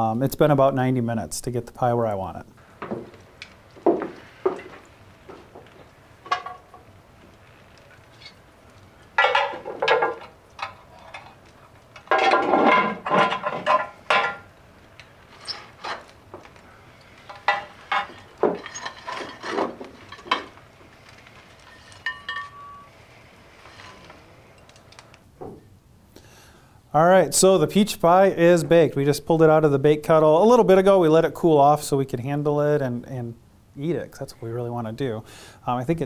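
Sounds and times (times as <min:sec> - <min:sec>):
embers clinking and rattling: 0:02.6 - 0:25.7
shovel scraping coals on stone: 0:02.7 - 0:25.2.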